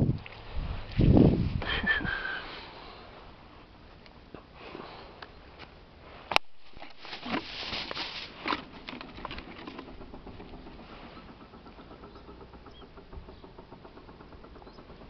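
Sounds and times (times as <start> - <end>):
bag rustling and handling: 6.6 - 9.9.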